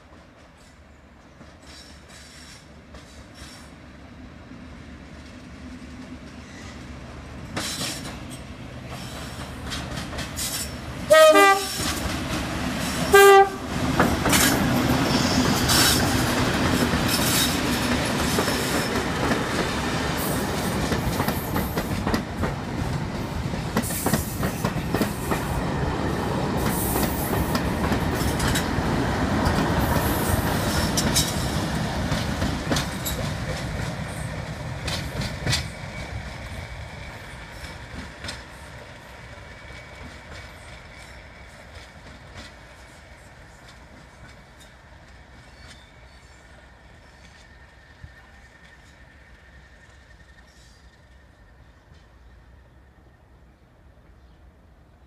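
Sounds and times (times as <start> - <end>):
wheels clicking over rail joints: 7.5 - 10.8, 11.6 - 25.7, 26.5 - 36.5, 37.5 - 38.9
locomotive horn blasts: 11.1 - 11.9, 13.1 - 13.7.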